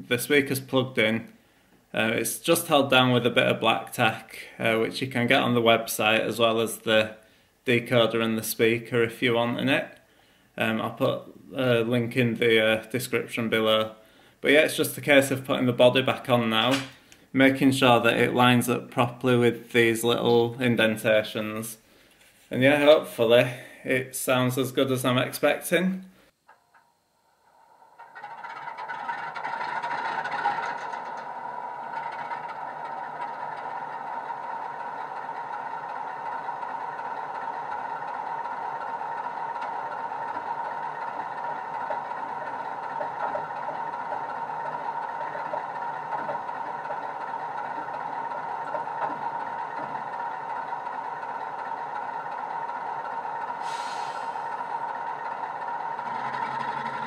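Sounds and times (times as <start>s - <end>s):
model diesel engine idling: 28.1s - 57.0s
brief hiss: 53.6s - 54.4s.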